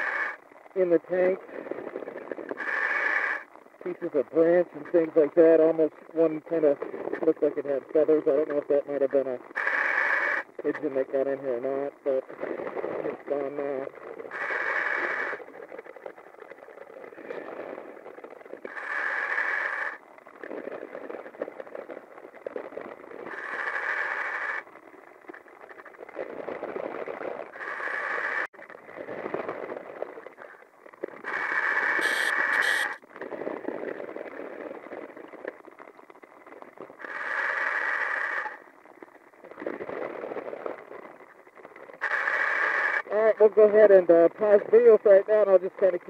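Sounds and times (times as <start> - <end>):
diver breathing through regulator: 2.6 - 3.4.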